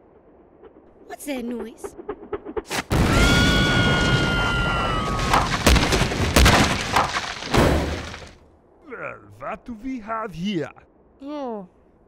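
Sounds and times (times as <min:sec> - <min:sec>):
cartoon explosion blast: 0:02.8 - 0:06.8
heavy thuds of falling rock: 0:05.0 - 0:08.4.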